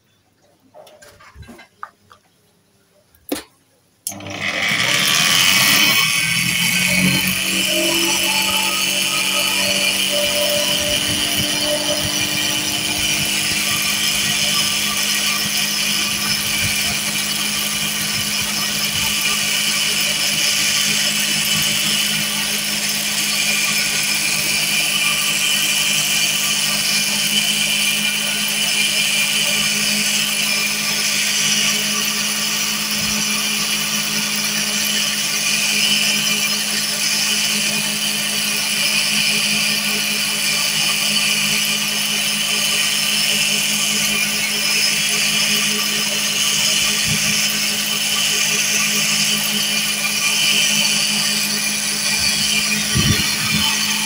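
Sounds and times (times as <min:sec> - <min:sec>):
cotton candy machine humming: 0:03.2 - 0:54.0
hissing whir: 0:04.1 - 0:34.0, 0:42.9 - 0:54.0.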